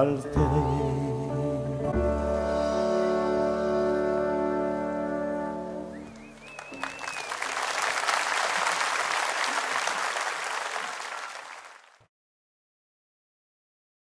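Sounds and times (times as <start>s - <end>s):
wavering whistle: 5.8s - 7.7s
audience applauding: 5.9s - 12.1s.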